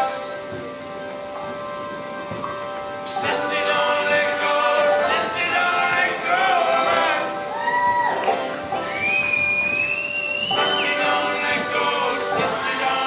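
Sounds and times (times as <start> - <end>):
men singing in harmony: 0.0 - 0.6, 2.9 - 7.9, 10.3 - 13.0
accordion: 0.0 - 13.0
double bass: 0.0 - 13.0.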